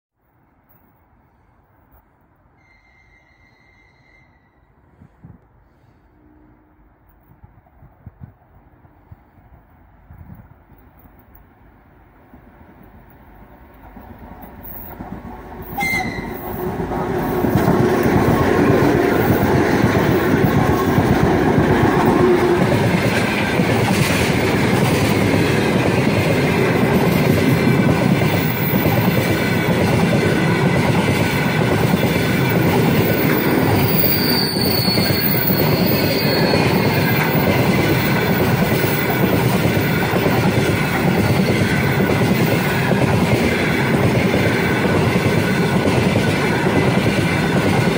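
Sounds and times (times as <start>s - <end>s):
diesel locomotives passing: 1.1s - 47.9s
train wheels clattering on rails: 12.3s - 47.9s.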